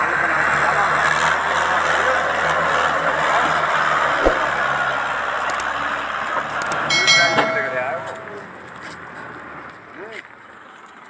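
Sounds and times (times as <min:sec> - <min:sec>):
brief knock: 0:04.2 - 0:04.5.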